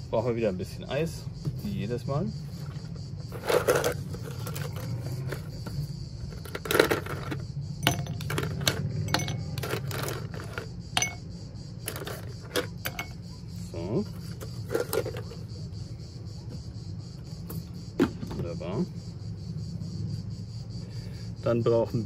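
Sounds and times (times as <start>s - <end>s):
ice cubes clinking in glass: 6.4s - 11.2s.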